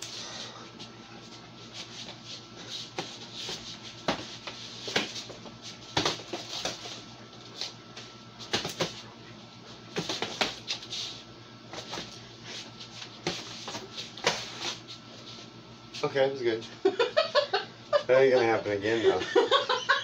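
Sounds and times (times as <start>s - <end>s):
slaps and thumps of punches: 8.5s - 9.0s.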